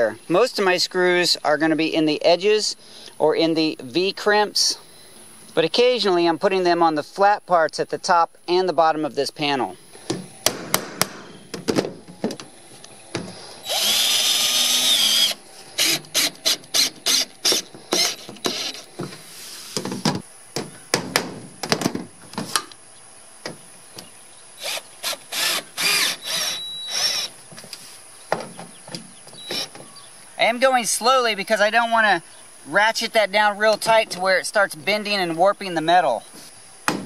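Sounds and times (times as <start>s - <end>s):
cordless drill driving screws: 13.6s - 18.9s, 24.6s - 27.3s.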